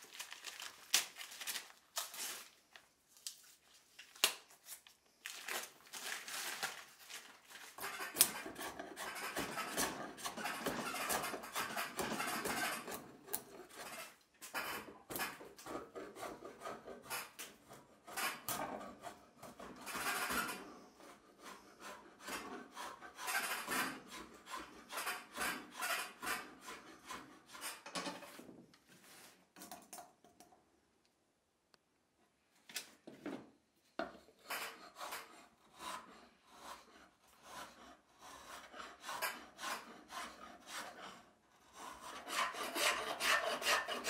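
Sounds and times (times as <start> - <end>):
drawknife shaving wood: 5.5 - 27.8, 34.4 - 44.0
file rasping on wood: 7.8 - 27.9, 34.4 - 44.0.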